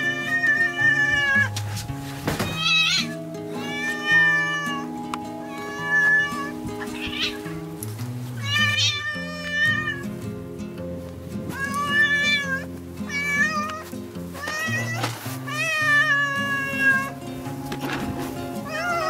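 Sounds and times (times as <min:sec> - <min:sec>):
cat meowing loudly: 0:00.0 - 0:01.5, 0:02.4 - 0:04.9, 0:05.5 - 0:07.6, 0:08.4 - 0:10.0, 0:11.5 - 0:13.8, 0:14.4 - 0:17.1, 0:18.6 - 0:19.0
background music: 0:00.0 - 0:19.0.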